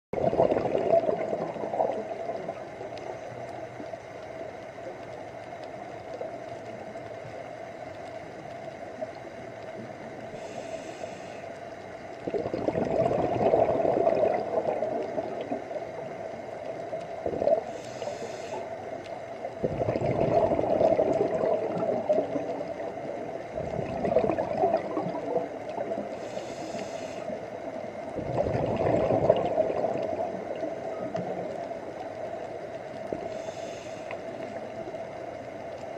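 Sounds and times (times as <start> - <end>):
steady hum: 0.2 - 35.9
diver breathing through regulator: 10.3 - 11.7, 17.6 - 18.8, 26.1 - 27.4, 33.2 - 34.4.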